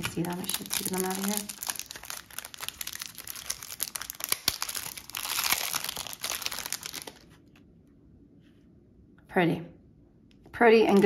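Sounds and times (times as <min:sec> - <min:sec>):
plastic bag crinkling: 0:00.0 - 0:07.4.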